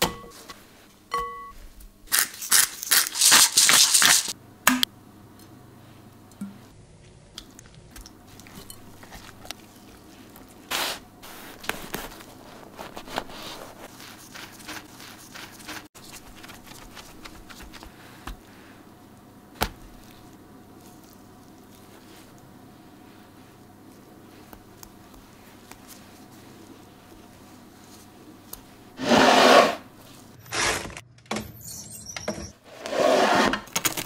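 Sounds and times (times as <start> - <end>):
soft squishes and scrapes: 7.0 - 18.9, 19.8 - 28.9.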